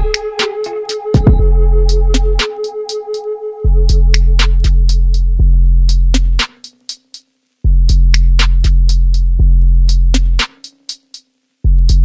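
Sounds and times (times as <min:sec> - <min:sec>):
hi-hat ticks: 0:00.0 - 0:01.2, 0:03.8 - 0:12.0
electronic beat with deep bass: 0:00.0 - 0:07.1, 0:07.7 - 0:11.1, 0:11.7 - 0:12.0.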